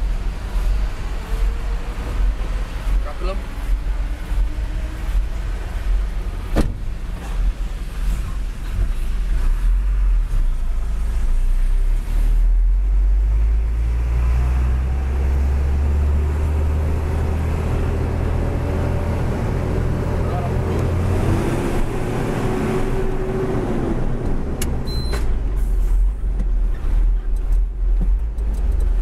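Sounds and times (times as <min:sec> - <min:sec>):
truck diesel engine rumble: 0:00.0 - 0:29.0
sharp knock: 0:06.5 - 0:06.9.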